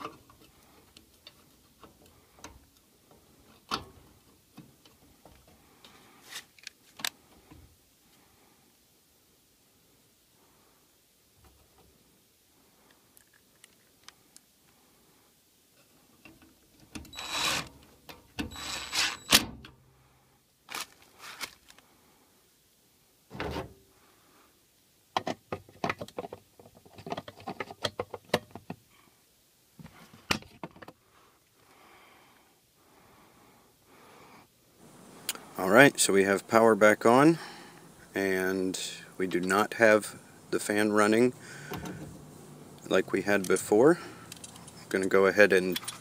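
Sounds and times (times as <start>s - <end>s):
metal parts scraping: 18.5s - 19.4s, 45.7s - 46.0s
clicks and clatters: 25.2s - 28.8s.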